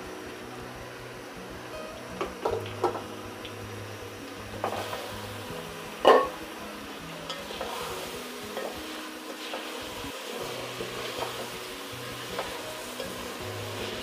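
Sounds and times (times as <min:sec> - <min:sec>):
faint sizzle: 0:00.0 - 0:14.0
spatula stirring rice in pot: 0:07.3 - 0:14.0.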